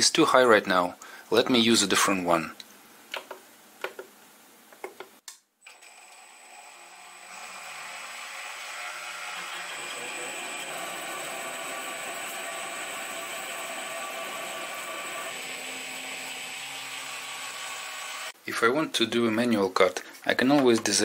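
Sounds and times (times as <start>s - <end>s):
lathe motor high whine: 5.8s - 18.4s
cutting tool cutting metal bar: 6.8s - 18.4s.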